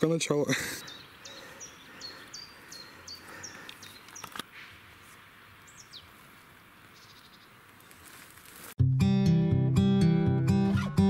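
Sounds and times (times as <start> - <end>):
small songbird singing: 0.7 - 4.4, 5.6 - 6.2, 6.9 - 8.0.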